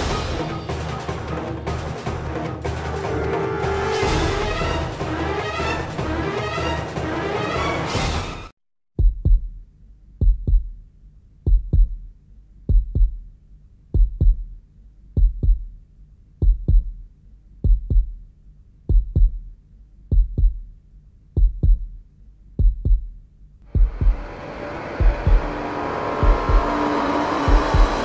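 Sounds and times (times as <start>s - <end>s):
heartbeat double thump: 9.0s - 9.6s, 10.2s - 10.8s, 11.5s - 12.1s, 12.7s - 13.3s, 14.0s - 14.6s, 15.2s - 15.8s, 16.4s - 17.0s, 17.6s - 18.2s, 18.9s - 19.5s, 20.1s - 20.7s, 21.4s - 22.0s, 22.6s - 24.3s, 25.0s - 25.6s, 26.2s - 26.8s, 27.4s - 28.0s
rushing noise: 23.8s - 28.0s.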